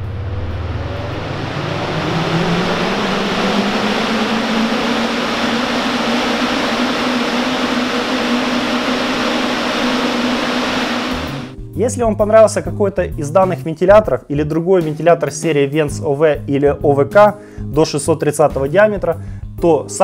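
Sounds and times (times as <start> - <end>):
exhaust fan motor hum: 0.0 - 11.5
rush of air from fan blades: 0.0 - 11.5.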